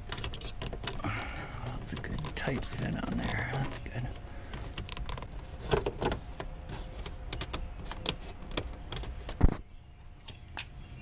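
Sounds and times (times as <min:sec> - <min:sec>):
clicks and taps on plastic trim: 0:00.1 - 0:03.8.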